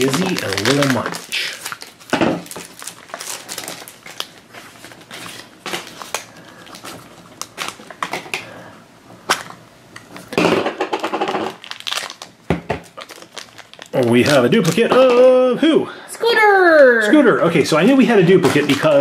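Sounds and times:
foil bag crinkling: 0:00.0 - 0:08.5, 0:09.3 - 0:15.5.

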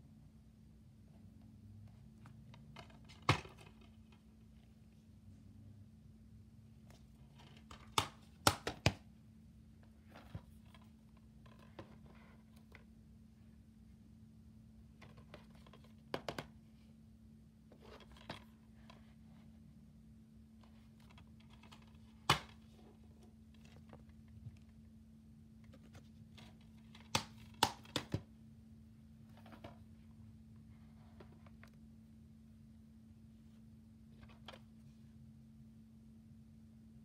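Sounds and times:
steady low hum: 0:09.0 - 0:37.0.

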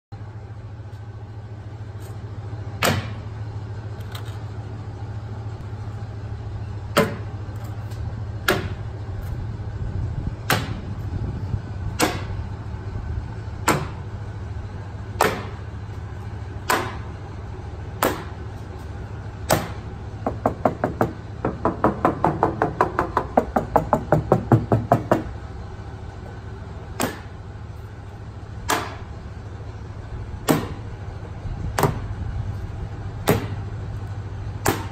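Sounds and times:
low hum: 0:00.1 - 0:34.9
fast taps on metal: 0:20.3 - 0:25.3.

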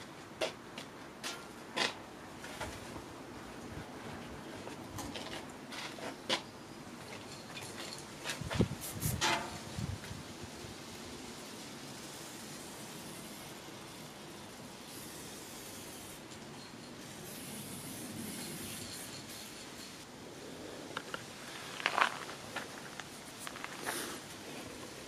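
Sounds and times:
spray paint can hissing: 0:08.7 - 0:09.3, 0:11.5 - 0:16.4, 0:17.0 - 0:20.0.

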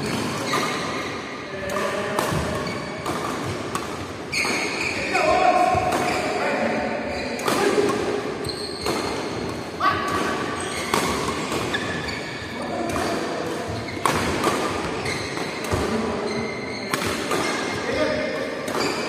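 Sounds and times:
shoes squeaking on court: 0:00.0 - 0:09.6, 0:10.5 - 0:17.9, 0:18.7 - 0:19.0
rackets striking shuttlecock: 0:01.7 - 0:04.9, 0:05.6 - 0:06.4, 0:07.3 - 0:12.1, 0:12.8 - 0:16.0, 0:16.9 - 0:17.8.

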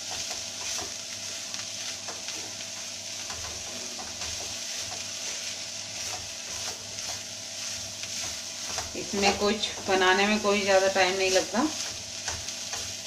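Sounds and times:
beans sizzling in a pan: 0:00.0 - 0:13.0
spatula scraping and tapping pan: 0:00.0 - 0:13.0.

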